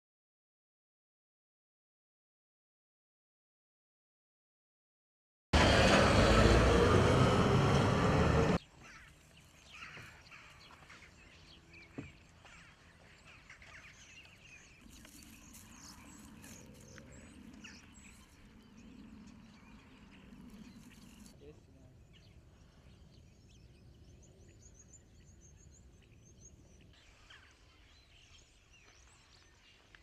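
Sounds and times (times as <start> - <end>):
loud rushing noise: 5.6 - 8.6
faint outdoor ambience: 5.6 - 30.0
bird-like chirps: 8.6 - 30.0.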